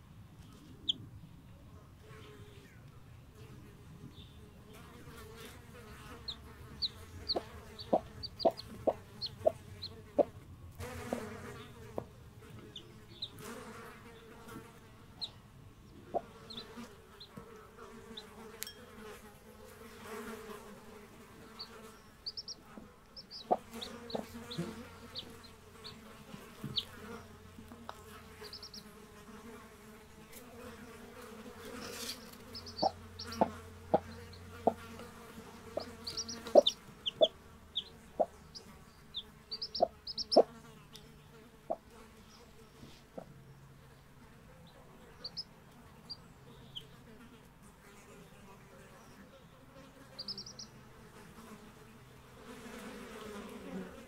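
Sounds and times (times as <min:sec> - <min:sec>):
insects buzzing: 0:04.1 - 0:54.0
chicks peeping: 0:06.1 - 0:10.3, 0:12.4 - 0:13.5, 0:15.2 - 0:17.4, 0:21.5 - 0:27.3, 0:28.3 - 0:29.0, 0:31.6 - 0:35.0, 0:35.6 - 0:41.1, 0:41.7 - 0:43.3, 0:44.6 - 0:45.5, 0:50.2 - 0:50.8
hen clucking low: 0:06.2 - 0:10.4, 0:16.0 - 0:17.3, 0:23.2 - 0:26.0, 0:32.5 - 0:34.8, 0:35.7 - 0:40.5.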